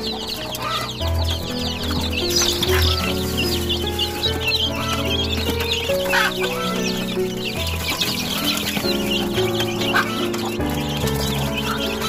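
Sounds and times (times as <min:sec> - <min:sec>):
background music with low bass: 0:00.0 - 0:12.0
chicks peeping: 0:00.0 - 0:12.0.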